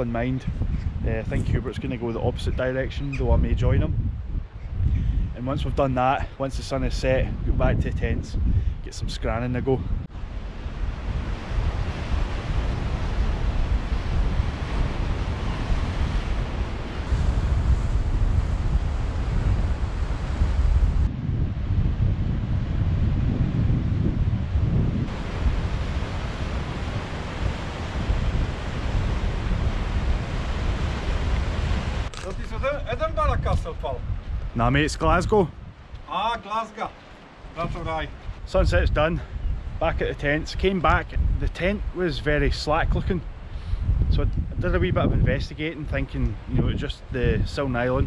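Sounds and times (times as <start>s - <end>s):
wind buffeting microphone: 0.0s - 48.0s
surf washing over rocks: 10.1s - 21.1s, 25.1s - 34.1s, 35.9s - 38.7s
waves washing against rocks: 25.1s - 32.7s.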